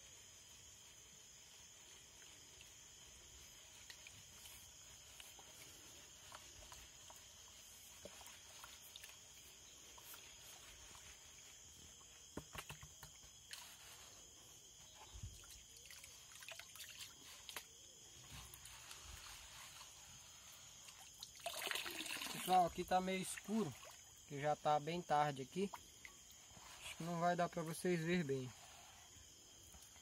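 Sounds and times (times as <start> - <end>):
high-pitched insect chorus: 0.0 - 30.0
small water splashes: 7.8 - 11.0, 15.3 - 17.8, 20.8 - 24.4.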